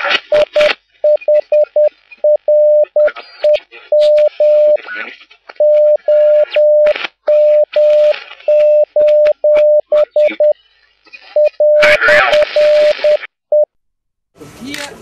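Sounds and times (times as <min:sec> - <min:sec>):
morse code beeps: 0:00.3 - 0:04.8, 0:05.6 - 0:10.6, 0:11.3 - 0:13.7.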